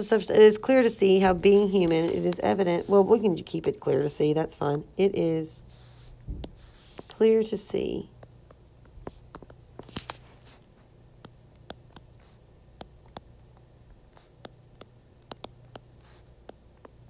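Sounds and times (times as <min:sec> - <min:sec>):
faint low hum: 0:00.0 - 0:17.0
stylus tapping on glass screen: 0:14.4 - 0:17.0.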